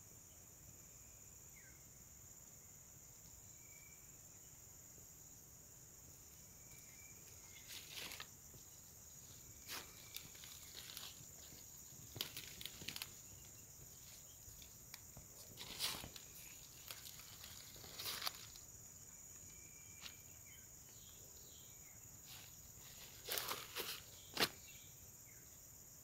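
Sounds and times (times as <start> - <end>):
insect chorus drone: 0.0 - 26.0
rustles and crackles: 6.7 - 20.2, 22.2 - 24.7.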